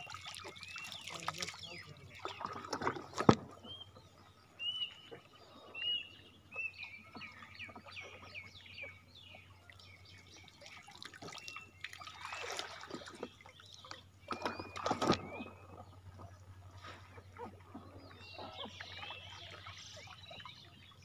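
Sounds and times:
water splashing: 0:00.0 - 0:03.7, 0:09.7 - 0:20.9
water trickling and swishing: 0:00.0 - 0:21.0
bird chirping: 0:17.4 - 0:21.0.

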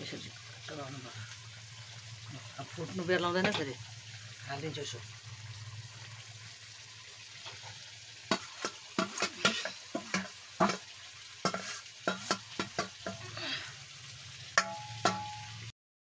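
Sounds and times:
food sizzling in a pan: 0:00.0 - 0:15.7
metal spoon scraping a pan: 0:07.4 - 0:13.4, 0:14.6 - 0:15.6.

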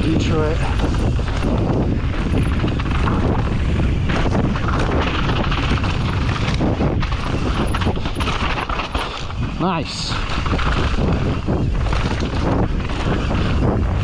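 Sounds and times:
bike knocking and rattling: 0:00.0 - 0:14.0
tyres rolling over dirt and rock: 0:00.0 - 0:14.0
wind noise on microphone: 0:00.0 - 0:14.0.

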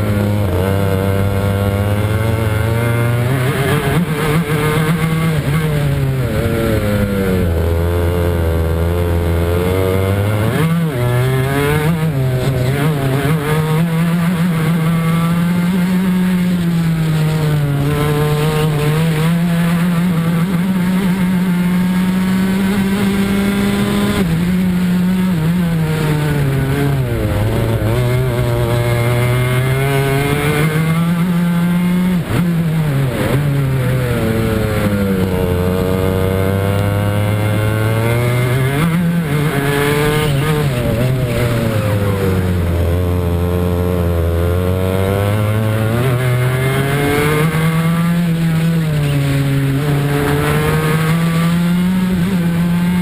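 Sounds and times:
kart engine revving: 0:00.0 - 0:53.0.

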